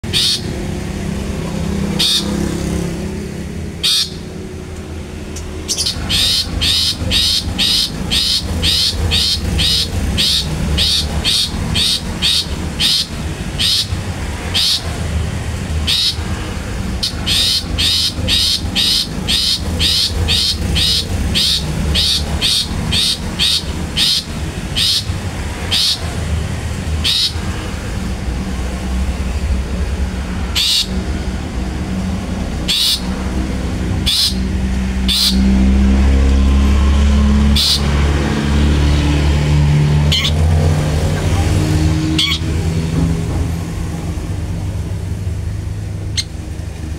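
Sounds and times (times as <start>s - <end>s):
shrike giving harsh calls: 0.0s - 0.7s, 1.8s - 2.6s, 3.8s - 4.4s, 5.6s - 15.1s, 15.7s - 27.7s, 30.5s - 31.1s, 32.6s - 33.2s, 34.0s - 35.6s, 37.4s - 38.0s, 42.0s - 42.5s.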